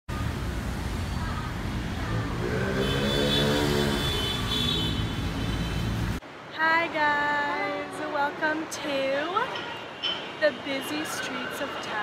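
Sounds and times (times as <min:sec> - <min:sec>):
traffic engines rumbling: 0:00.1 - 0:12.0
vehicle passing by: 0:01.6 - 0:06.2.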